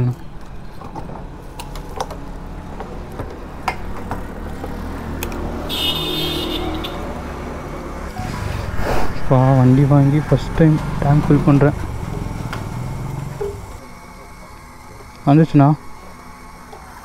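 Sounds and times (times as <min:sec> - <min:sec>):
fuel pump humming: 0:09.7 - 0:17.0.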